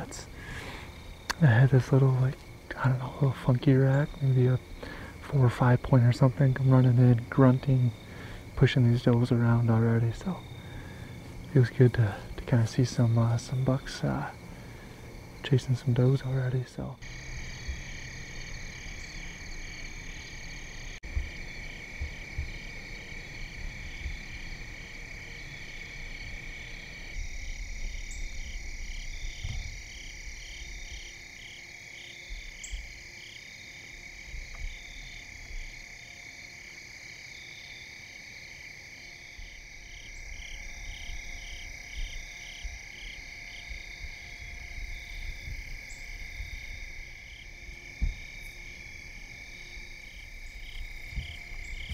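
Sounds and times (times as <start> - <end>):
faint low rumbles: 0.0 - 31.4, 39.4 - 51.9
crickets and insects trilling: 0.0 - 51.9
pulsed insect chirps: 17.0 - 51.9.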